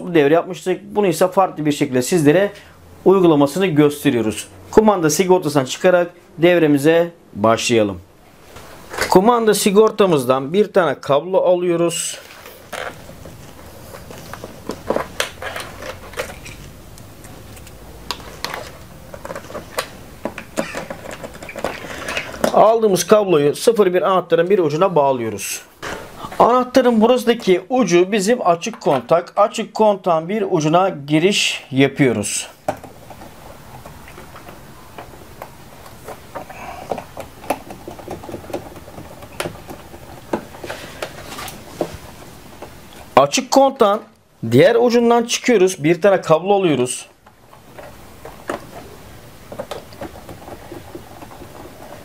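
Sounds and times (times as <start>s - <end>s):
plastic clicks and knocks: 18.1s - 22.6s, 32.7s - 41.2s, 49.5s - 52.0s.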